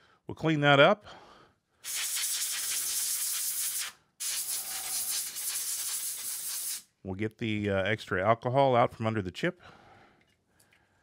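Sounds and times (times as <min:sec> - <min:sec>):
brush scrubbing circuit board: 0:01.9 - 0:06.8.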